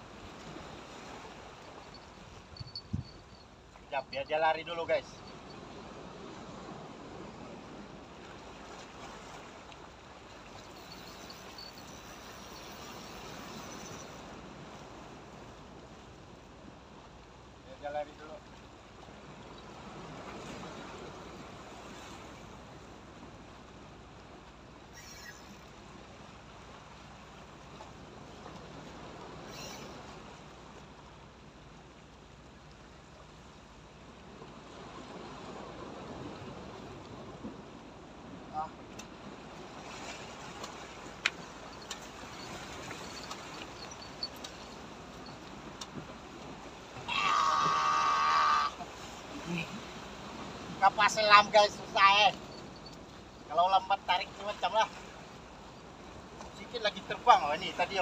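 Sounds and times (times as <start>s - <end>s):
sea water washing against rocks: 39.0s - 55.4s.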